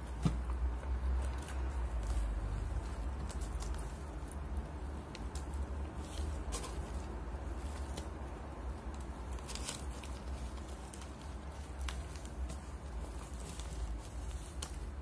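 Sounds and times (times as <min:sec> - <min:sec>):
paper wrapper crinkling: 0:01.2 - 0:15.0.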